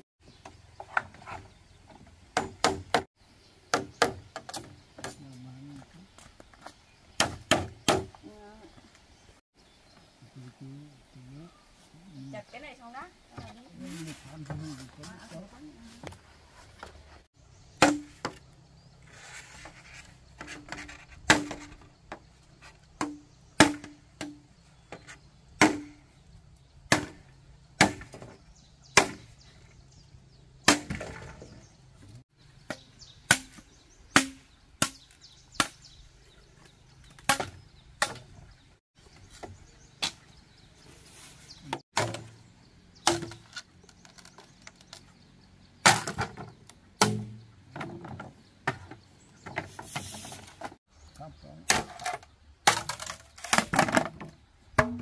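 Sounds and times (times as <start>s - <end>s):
machete chopping bamboo: 2.4s - 3.1s, 3.7s - 4.8s, 7.2s - 8.2s, 17.8s - 18.4s, 21.3s - 21.9s, 23.0s - 26.0s, 26.9s - 29.4s, 30.6s - 31.4s, 32.6s - 35.9s, 37.1s - 38.3s, 39.4s - 40.3s, 41.7s - 42.4s, 43.0s - 45.0s, 45.8s - 47.5s, 51.7s - 55.0s.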